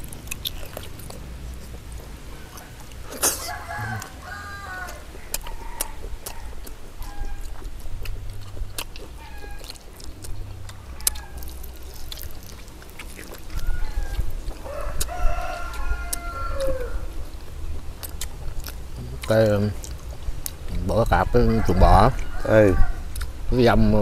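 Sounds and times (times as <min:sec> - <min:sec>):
chickens clucking: 0:00.0 - 0:24.0
rooster crowing: 0:02.2 - 0:07.6, 0:09.2 - 0:09.7, 0:10.7 - 0:11.8, 0:13.4 - 0:17.2, 0:21.0 - 0:23.2.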